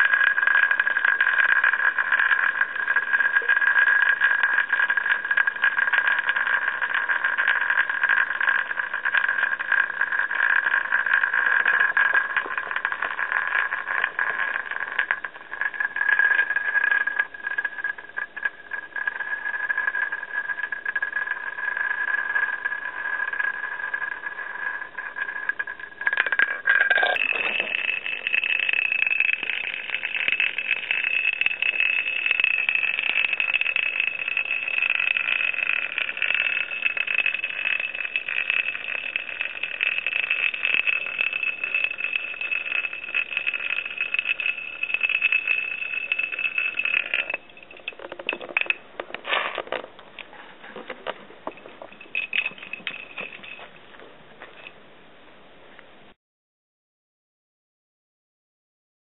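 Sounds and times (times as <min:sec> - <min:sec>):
toy top whirring: 0:00.0 - 0:53.8
top tip rattling on concrete: 0:00.0 - 0:54.8.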